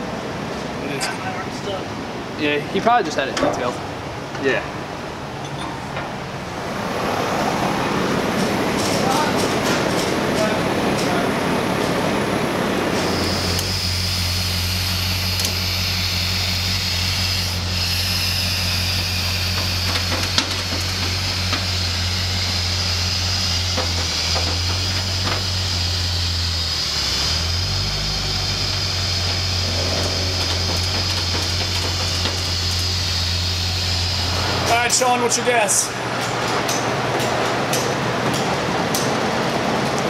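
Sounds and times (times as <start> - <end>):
car engine idling: 6.3 - 34.7.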